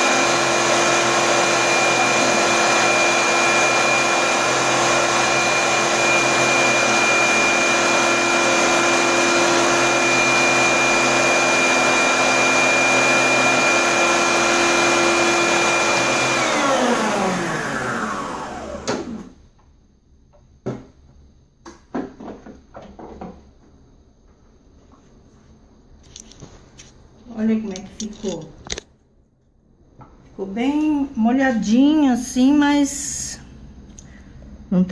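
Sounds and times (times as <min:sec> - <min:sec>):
food processor motor whining: 0:00.0 - 0:19.4.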